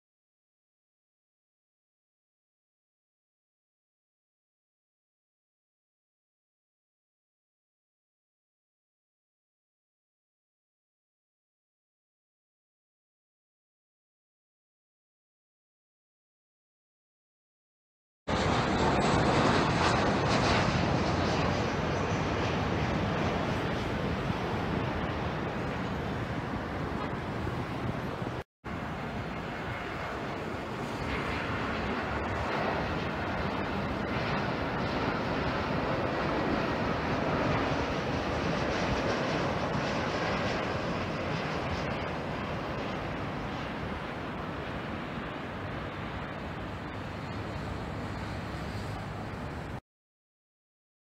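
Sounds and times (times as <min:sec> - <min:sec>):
airliner engine noise: 0:18.3 - 0:49.8
distant city traffic rumble: 0:18.3 - 0:49.8.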